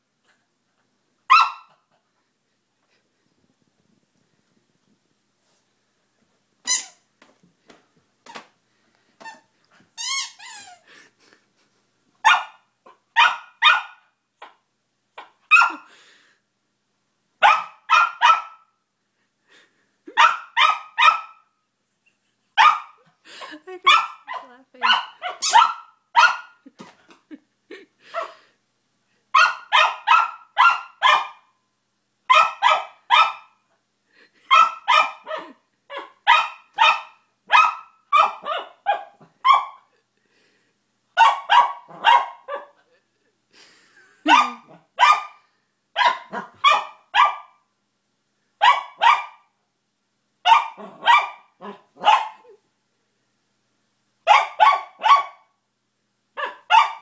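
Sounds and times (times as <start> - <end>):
small dog barking: 1.3 - 1.8, 12.2 - 14.6, 15.2 - 15.9, 17.4 - 18.7, 20.2 - 21.4, 22.6 - 23.0, 23.9 - 26.6, 29.3 - 31.5, 32.3 - 33.6, 34.5 - 39.9, 41.2 - 42.8, 44.2 - 47.6, 48.6 - 49.5, 50.4 - 52.6, 54.2 - 55.5, 56.4 - 57.0.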